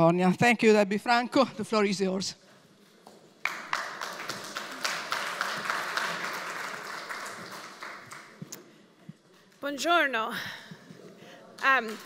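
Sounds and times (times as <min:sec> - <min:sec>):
audience applauding: 0:03.4 - 0:08.6.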